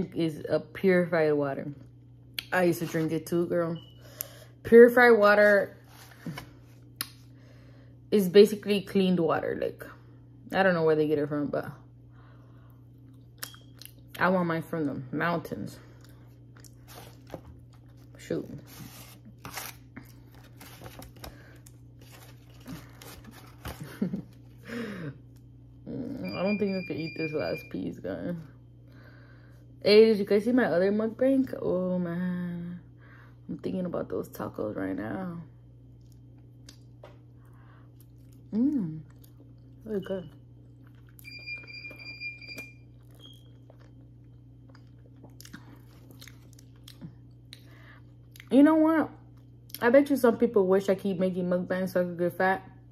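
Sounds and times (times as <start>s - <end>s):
low steady hum: 0.0s - 52.9s
chewing: 37.9s - 41.3s, 42.9s - 48.5s.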